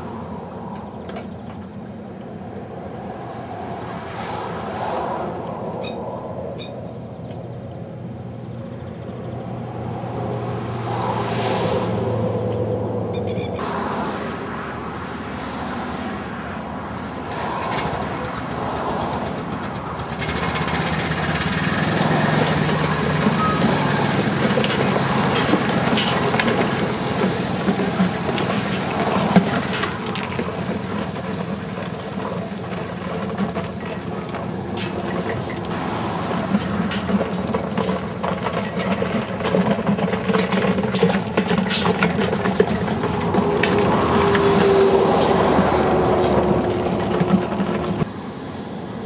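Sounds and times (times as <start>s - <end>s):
quad bike engine running: 17.7s - 48.1s
pipe dragging over gravel: 20.2s - 48.1s.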